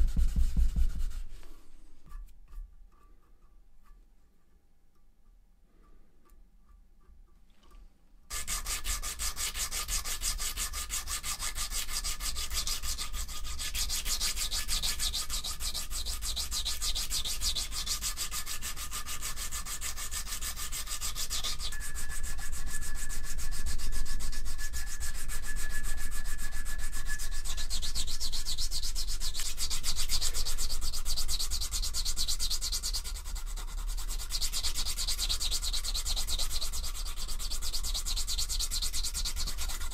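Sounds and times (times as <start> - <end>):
sanding stick rubbing on steel: 8.3 - 39.9.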